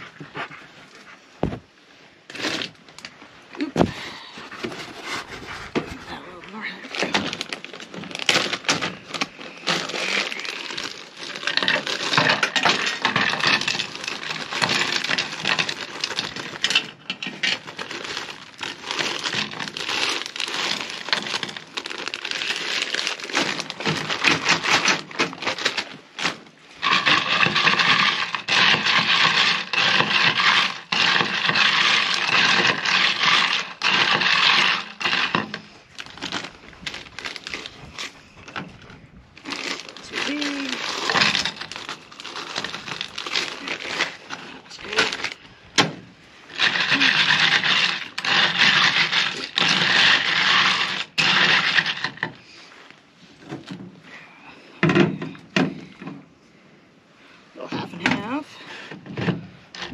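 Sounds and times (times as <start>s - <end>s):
ice cubes clattering in bag: 2.3s - 2.8s, 5.8s - 45.5s, 46.4s - 52.4s
plastic bag crinkling: 2.3s - 45.7s, 46.4s - 52.4s.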